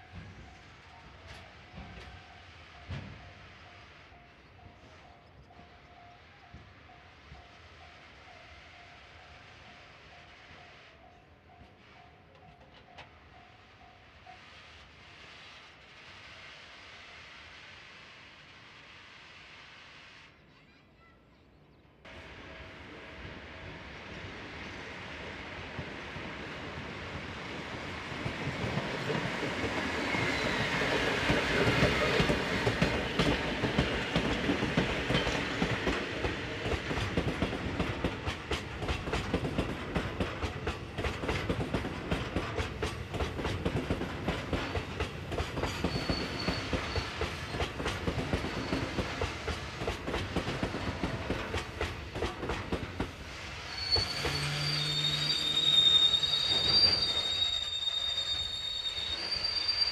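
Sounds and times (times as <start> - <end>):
train wheels clicking on rail joints: 25.5 - 59.9
high wheel squeal: 29.7 - 32.1, 45.6 - 47.6, 48.4 - 49.1, 53.5 - 59.9.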